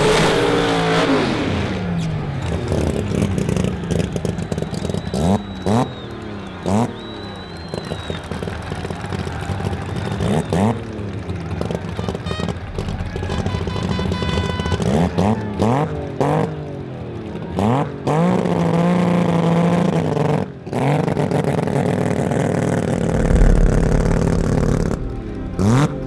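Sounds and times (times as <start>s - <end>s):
car engine revving: 12.5s - 15.8s, 22.4s - 26.0s.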